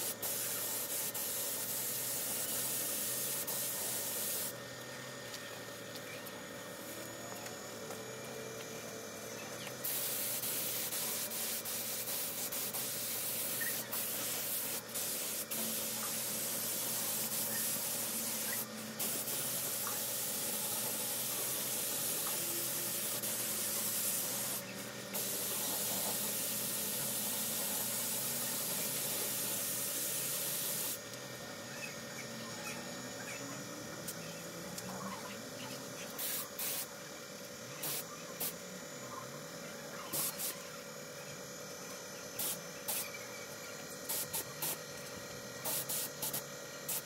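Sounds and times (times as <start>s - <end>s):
spray gun hissing: 0.0s - 4.5s, 9.8s - 31.0s, 36.2s - 36.9s, 44.1s - 44.8s, 45.6s - 47.0s.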